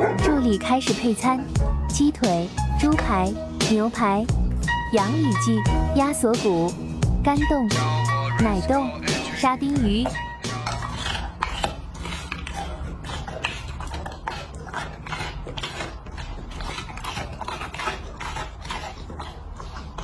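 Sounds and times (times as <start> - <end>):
dog chewing and licking meat: 8.0 - 20.0.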